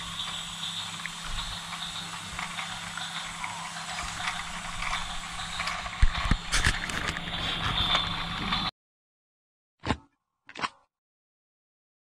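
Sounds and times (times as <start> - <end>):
toy train motor whirring: 0.0 - 8.7
toy train wheels clicking on track: 0.0 - 8.7.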